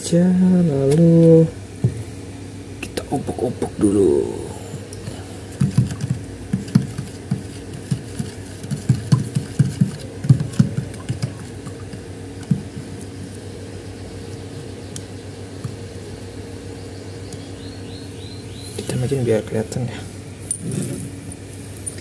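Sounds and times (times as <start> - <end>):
steady low hum: 0.0 - 22.0
baking soda stirred into water: 5.5 - 13.1.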